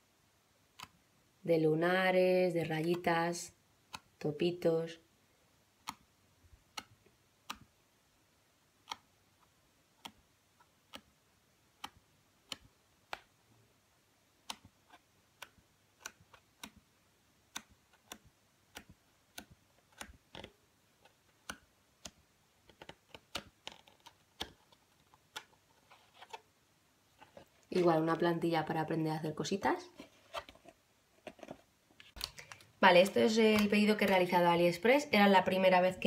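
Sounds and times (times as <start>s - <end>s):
cardstock sheets turning: 17.9s - 26.5s.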